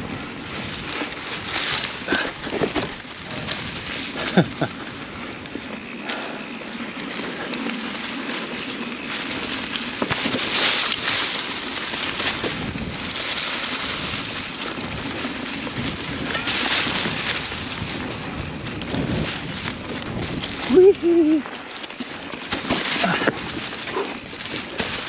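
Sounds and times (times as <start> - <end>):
tyres rolling on dirt trail: 0.0 - 25.0
wind on microphone: 12.3 - 21.5.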